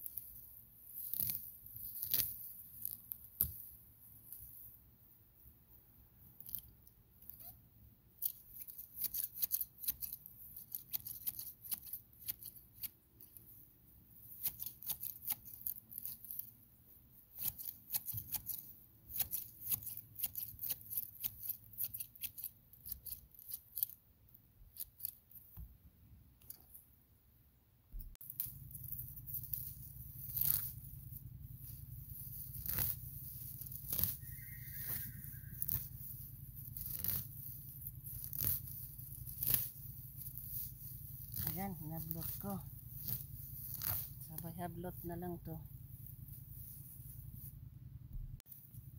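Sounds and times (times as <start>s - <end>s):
grass torn out by hand: 0.0s - 4.6s, 8.2s - 13.5s, 14.2s - 16.5s, 17.3s - 24.0s, 28.2s - 45.2s
grass shears snipping: 1.0s - 3.6s, 8.2s - 13.0s, 14.3s - 16.4s, 17.3s - 24.0s, 28.3s - 30.9s, 31.7s - 45.2s.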